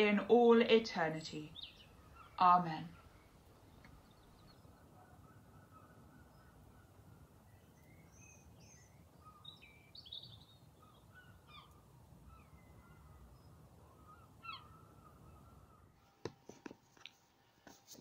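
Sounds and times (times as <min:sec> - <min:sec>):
low steady background hush: 0:00.0 - 0:18.0
birds chirping and whistling: 0:03.0 - 0:15.9.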